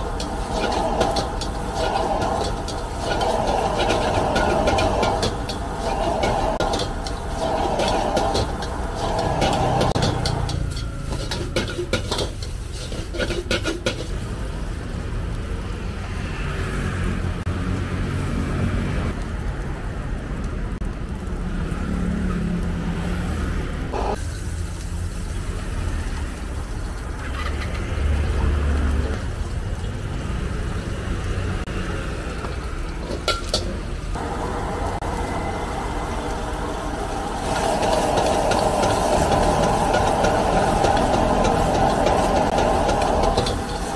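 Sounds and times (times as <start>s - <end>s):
metal ladle scraping a wok: 0.0s - 14.2s, 27.2s - 28.0s, 37.0s - 43.9s
cabbage sizzling in hot oil: 0.0s - 16.6s, 21.2s - 43.9s
gas burner rumbling: 0.0s - 43.9s.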